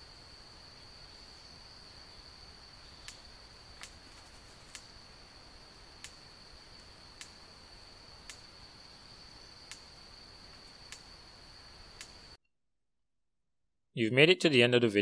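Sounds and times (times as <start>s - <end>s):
insect high-pitched drone: 0.0s - 12.4s
sharp single clicks: 3.0s - 4.0s, 6.0s - 6.2s, 6.8s - 7.4s, 8.2s - 8.5s, 9.6s - 10.0s, 10.6s - 11.2s, 12.0s - 12.2s.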